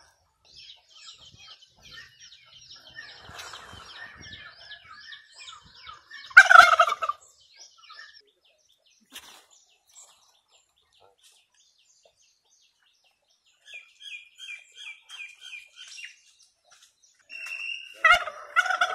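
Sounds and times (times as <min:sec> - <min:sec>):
small birds chirping: 0:00.0 - 0:18.9
turkey gobbling: 0:03.0 - 0:07.3, 0:17.9 - 0:18.9.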